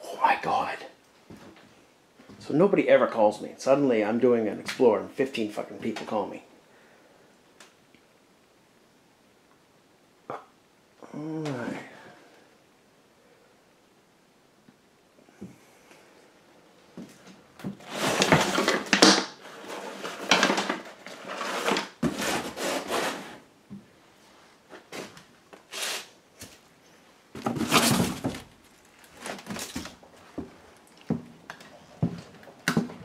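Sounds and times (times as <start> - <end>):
rustling: 15.6 - 33.0.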